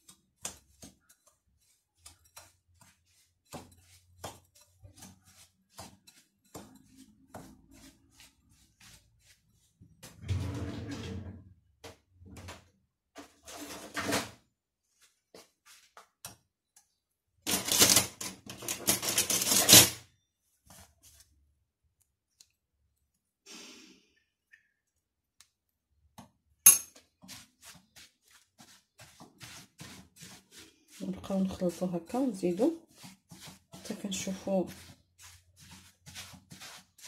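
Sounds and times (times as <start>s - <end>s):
spatula scraping in glass bowl: 0.1s - 9.6s, 26.7s - 37.0s.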